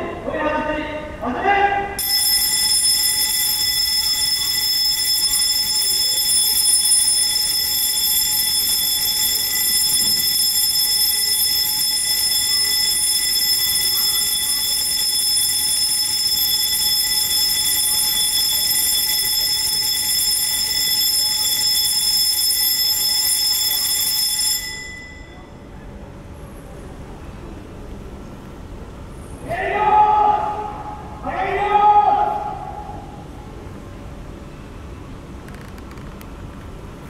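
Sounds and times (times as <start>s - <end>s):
steady electronic warning alarm: 2.0s - 25.5s.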